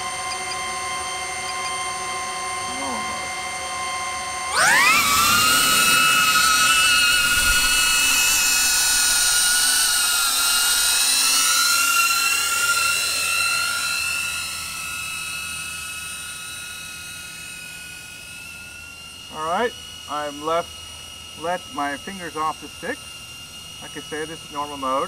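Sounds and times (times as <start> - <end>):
drone propellers whining: 0.0 - 25.0.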